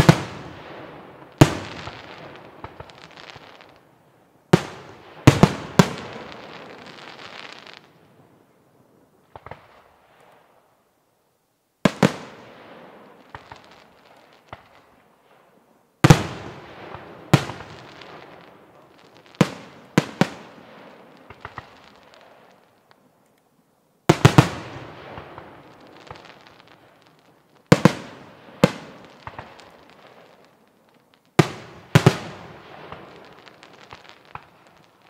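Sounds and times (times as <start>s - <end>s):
faint firework pops: 1.2s - 3.8s, 9.3s - 10.6s, 13.1s - 23.5s, 24.1s - 35.0s.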